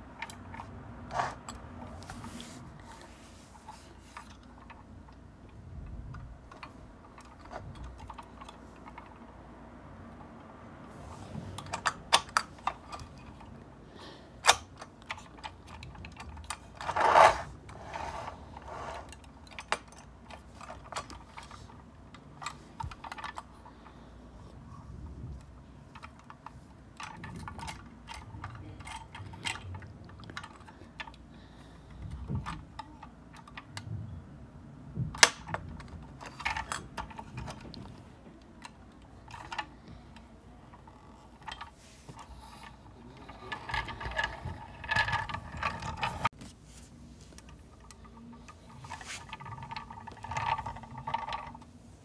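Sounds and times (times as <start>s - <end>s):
toy truck plastic clicking: 0.0s - 2.1s, 10.2s - 13.7s, 14.4s - 24.1s, 25.9s - 31.3s, 35.2s - 46.3s
plastic rattle: 14.4s - 24.5s, 35.2s - 46.4s, 47.3s - 51.7s.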